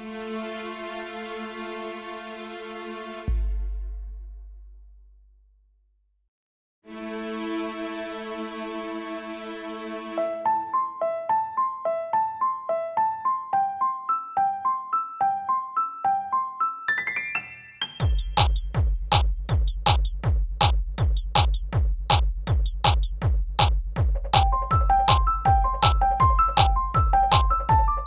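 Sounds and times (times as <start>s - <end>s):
piano-like arpeggio: 10.2s - 18.2s, 24.4s - 28.0s
electronic beat with deep kick drum: 18.0s - 28.0s.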